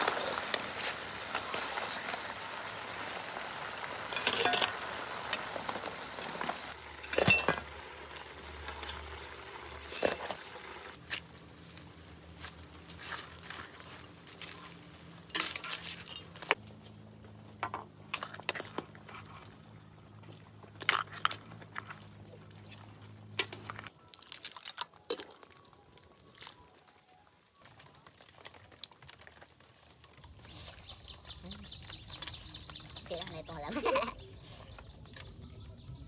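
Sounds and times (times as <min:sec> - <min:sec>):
metal ladle clinking in wok: 0:04.1 - 0:04.8
crab shell cracking and crunching: 0:23.4 - 0:29.6.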